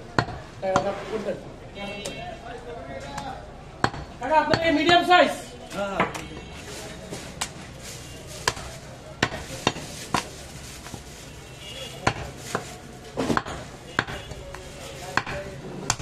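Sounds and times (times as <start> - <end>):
knife chopping meat and bone: 8.4 - 10.3, 12.0 - 12.6, 13.2 - 14.4, 15.1 - 16.0.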